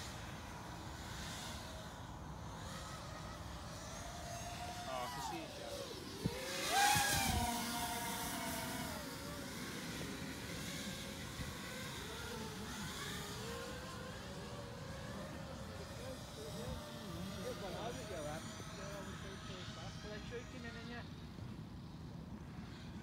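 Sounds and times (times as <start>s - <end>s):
quadcopter motors whining: 0.0s - 23.0s.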